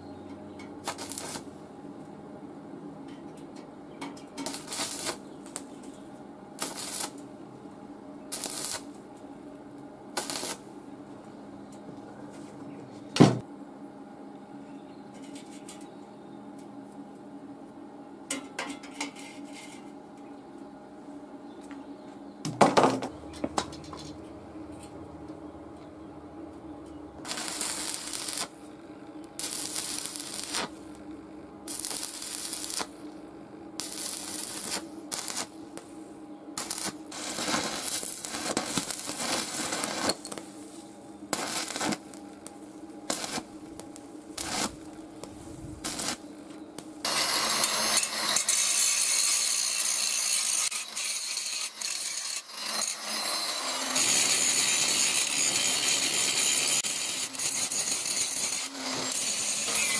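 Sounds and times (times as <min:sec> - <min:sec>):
motor hum: 0:23.0 - 0:40.4
power tool grinding metal: 0:47.1 - 0:59.9.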